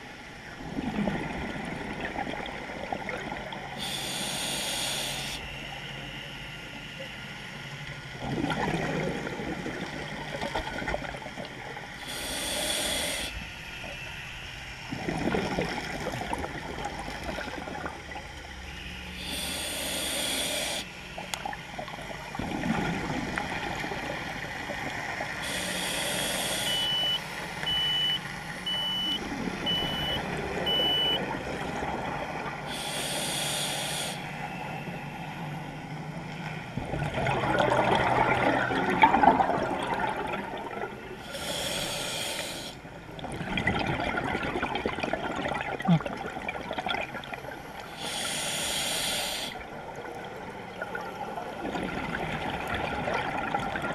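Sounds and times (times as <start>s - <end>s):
diver inhaling through regulator: 3.8s - 5.6s, 12.0s - 13.5s, 19.2s - 20.9s, 25.4s - 27.2s, 32.6s - 34.4s, 41.1s - 42.8s, 47.8s - 49.7s
bubbling exhale: 25.4s - 27.2s, 32.6s - 34.2s, 36.9s - 49.7s
short high beeps: 26.6s - 31.2s.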